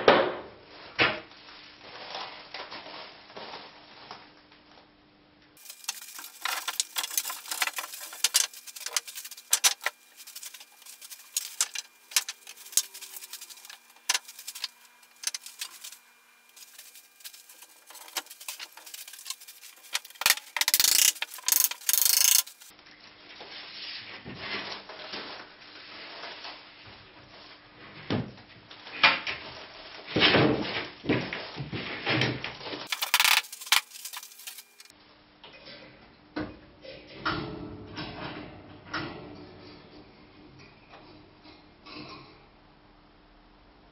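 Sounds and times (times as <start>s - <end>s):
wood scraping: 5.6s - 22.7s, 32.9s - 34.9s.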